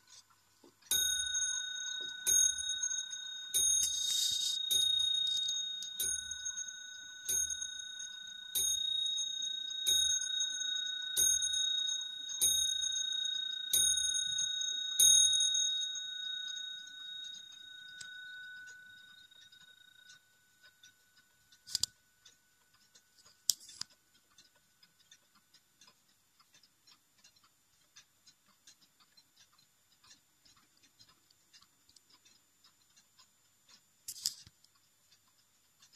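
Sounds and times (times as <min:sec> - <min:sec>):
clock ticking: 0:00.0 - 0:35.9
sharp clock clicks: 0:00.8 - 0:35.9
clock bell striking: 0:00.9 - 0:20.1.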